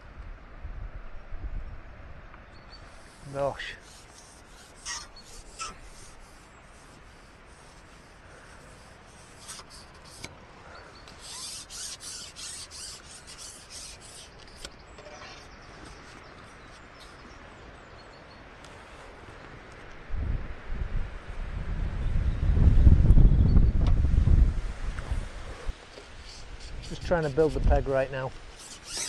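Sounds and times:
fishing pole sections scraping: 2.8 - 10.4, 11.0 - 17.2, 25.5 - 29.0.

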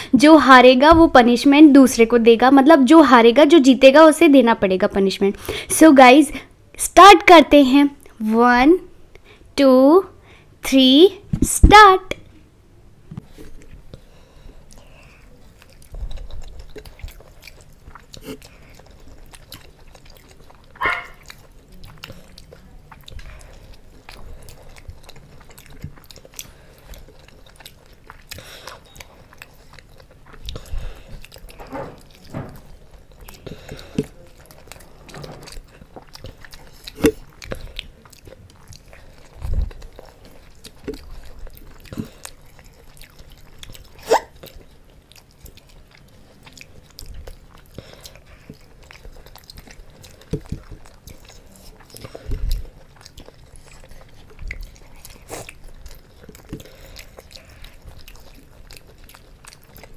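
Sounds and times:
people chewing food: 12.1 - 59.9.

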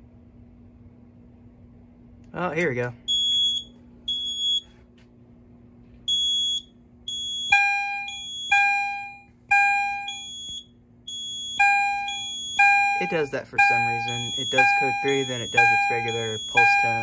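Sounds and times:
fire alarm chime: 3.1 - 4.7, 6.1 - 17.0.

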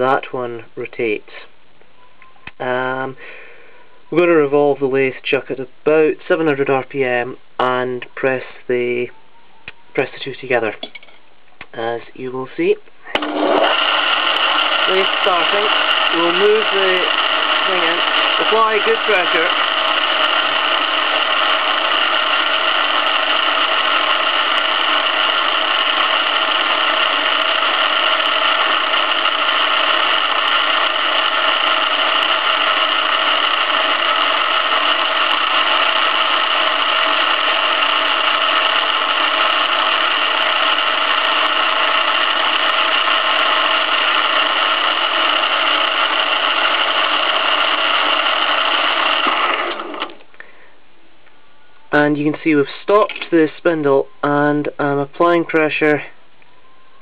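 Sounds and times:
lathe whining: 13.1 - 50.3.

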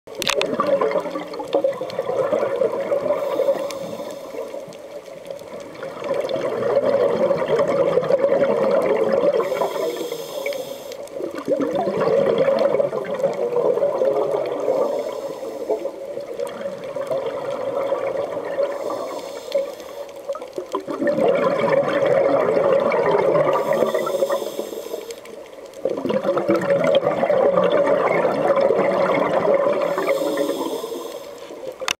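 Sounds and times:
exhaled bubbles underwater: 0.1 - 32.0.

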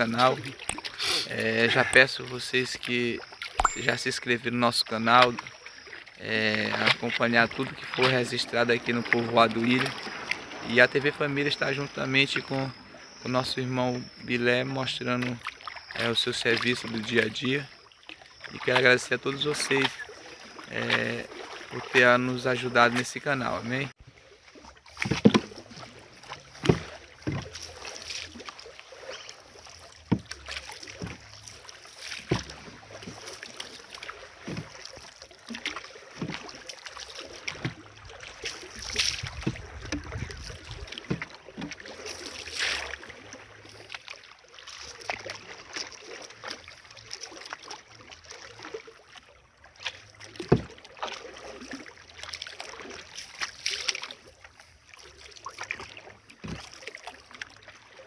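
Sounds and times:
lapping water: 0.0 - 23.9, 24.5 - 58.0
paddle splashing in water: 0.0 - 58.0
knocks on wooden hull: 25.0 - 25.6, 50.4 - 50.8.

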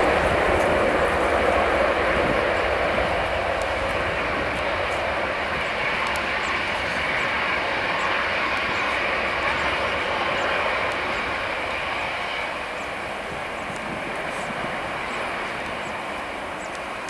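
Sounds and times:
jet engine roar at takeoff: 0.0 - 17.0.

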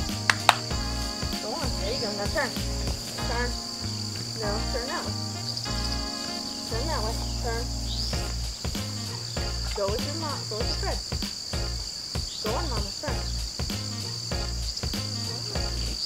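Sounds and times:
background music: 0.0 - 16.0
crickets chirping: 0.0 - 16.0.

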